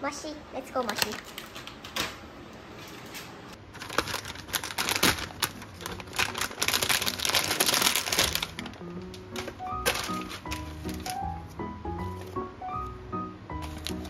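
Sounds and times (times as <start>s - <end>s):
plastic packet crinkling and tearing: 3.6s - 11.3s, 13.6s - 14.0s.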